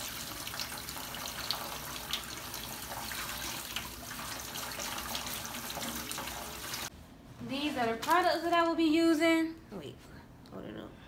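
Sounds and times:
faucet running into steel sink: 0.0s - 6.9s.

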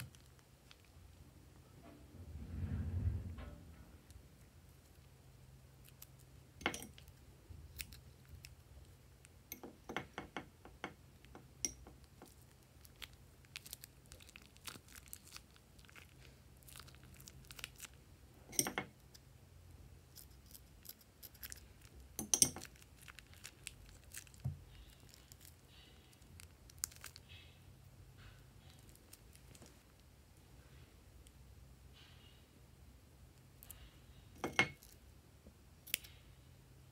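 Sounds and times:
plastic piping bag crinkling: 0.0s - 1.2s, 4.4s - 9.4s, 11.9s - 18.1s, 20.2s - 27.4s, 28.6s - 30.2s.

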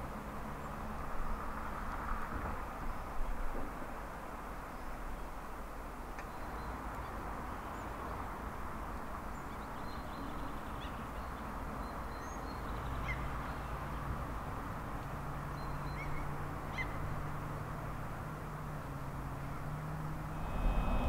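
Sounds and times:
low engine hum: 19.1s - 21.0s.

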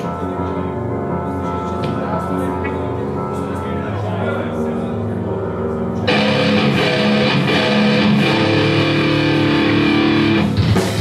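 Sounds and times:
distorted electric guitar: 6.0s - 11.0s
live rock band: 6.0s - 11.0s.

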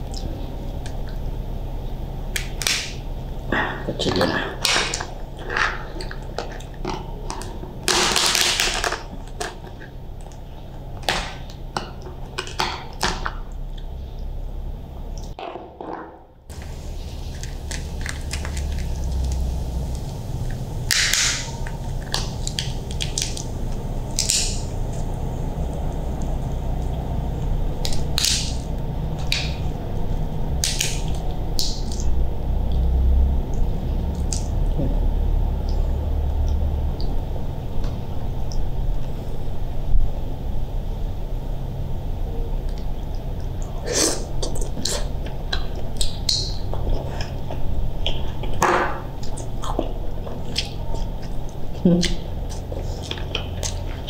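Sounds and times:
steady low rumble: 0.0s - 12.4s, 16.4s - 54.0s
shell cracking and crunching: 24.1s - 24.7s.

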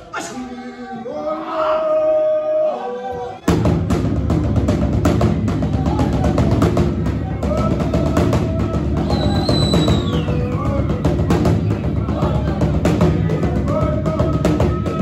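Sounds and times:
voices singing: 0.0s - 15.0s
fast hand drumming: 3.5s - 15.0s.

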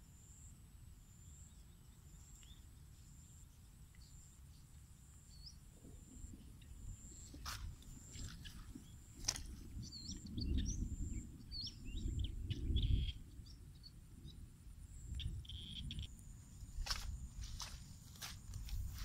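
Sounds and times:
birds chirping: 1.2s - 14.4s, 15.0s - 19.0s
wind on microphone: 5.7s - 19.0s
high insect drone: 14.8s - 19.0s.

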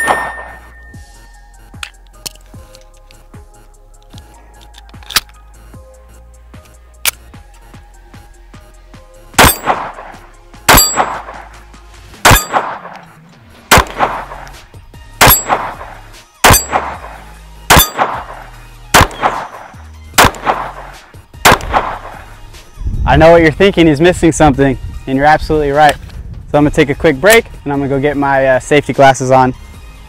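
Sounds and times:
pistol shots: 0.0s - 0.7s, 9.4s - 11.6s, 12.2s - 13.1s, 13.7s - 14.6s, 15.2s - 22.3s
steel target clanging: 0.0s - 1.0s, 10.7s - 11.4s, 15.2s - 15.8s, 16.4s - 17.0s, 17.7s - 18.3s.

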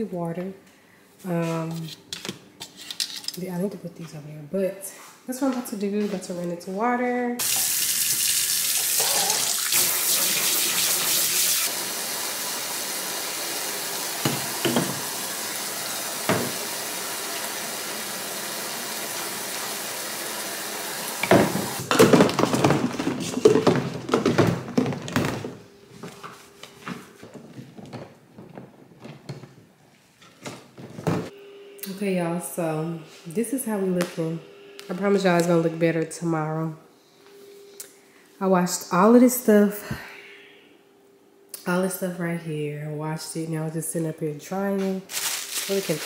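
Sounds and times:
faucet running into sink: 7.4s - 20.1s.

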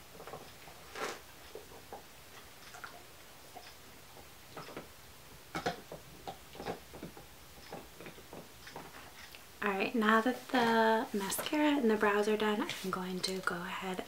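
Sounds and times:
dog gnawing on chew bone: 4.5s - 4.9s, 5.5s - 9.4s.

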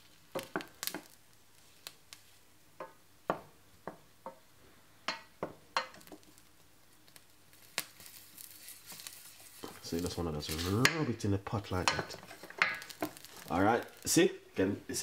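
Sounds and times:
mustard seeds popping: 0.0s - 3.0s, 5.1s - 14.3s
spoon stirring in metal pan: 5.1s - 6.5s, 11.7s - 14.1s.

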